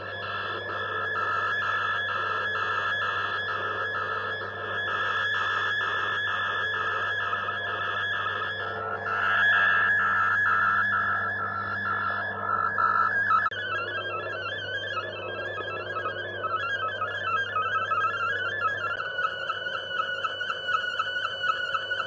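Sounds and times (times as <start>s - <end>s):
low hum: 8.6s - 14.4s.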